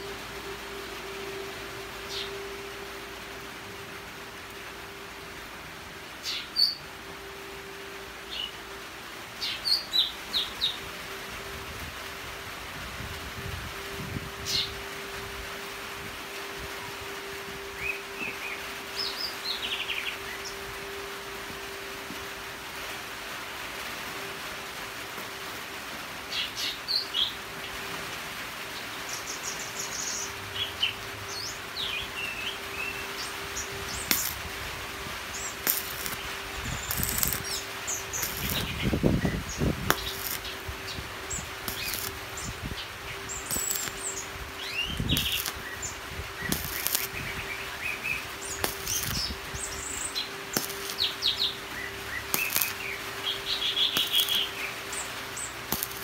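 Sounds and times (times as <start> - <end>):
welding arc crackling: 0.0 - 56.0
small birds chirping: 6.2 - 6.9, 9.4 - 10.8, 17.8 - 20.7, 35.3 - 56.0.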